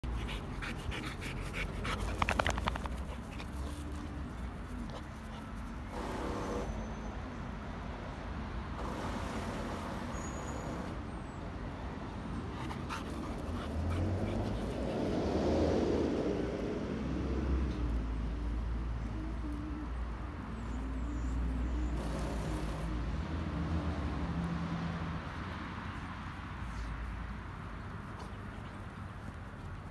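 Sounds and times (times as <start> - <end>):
dog panting: 0.0 - 5.9, 12.5 - 15.2.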